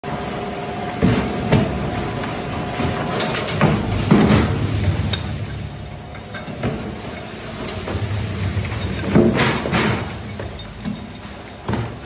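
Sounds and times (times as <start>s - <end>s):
metal shredder humming: 0.8s - 12.0s.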